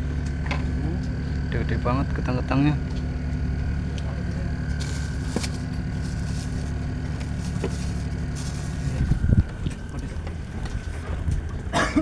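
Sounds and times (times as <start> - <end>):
boat engine humming: 0.0 - 12.0
plastic bag rustling: 4.7 - 10.9.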